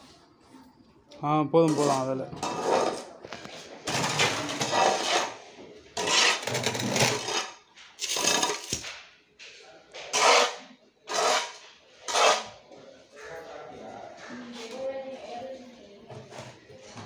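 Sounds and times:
hoe scraping soil on tiles: 0:01.7 - 0:05.4, 0:06.0 - 0:08.9, 0:10.1 - 0:12.6.

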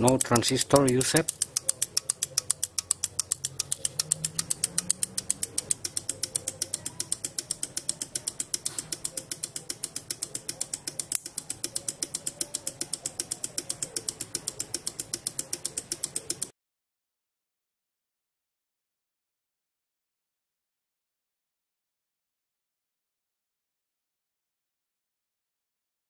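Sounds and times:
relays clicking rapidly: 0:00.0 - 0:16.5.

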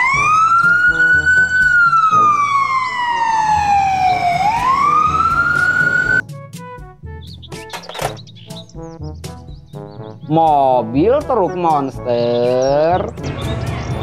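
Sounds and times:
ambulance siren wailing: 0:00.0 - 0:06.2
background music: 0:00.0 - 0:14.0.

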